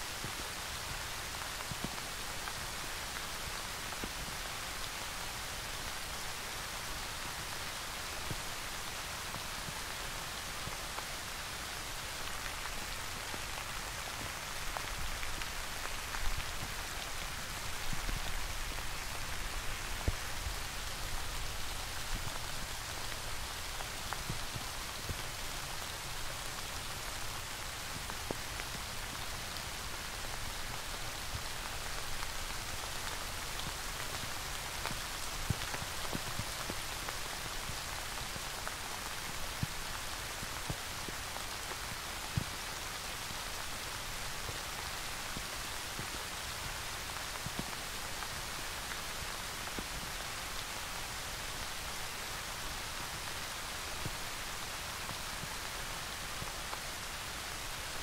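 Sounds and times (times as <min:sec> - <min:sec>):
steady rain hiss: 0:00.0 - 0:58.0.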